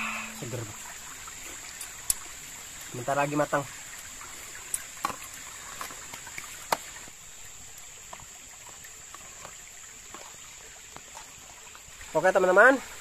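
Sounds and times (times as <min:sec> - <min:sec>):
steady high hiss: 0:00.0 - 0:02.2.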